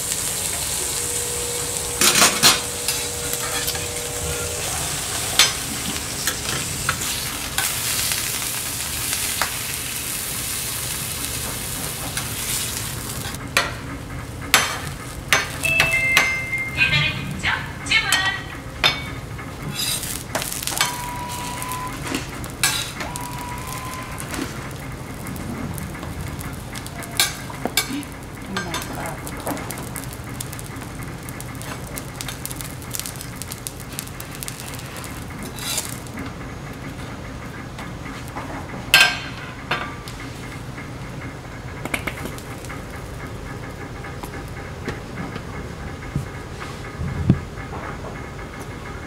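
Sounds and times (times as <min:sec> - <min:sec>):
food sizzling on griddle: 0:00.0 - 0:13.7, 0:14.5 - 0:16.9, 0:19.7 - 0:36.2
metal spatula scraping plate: 0:19.6 - 0:20.1.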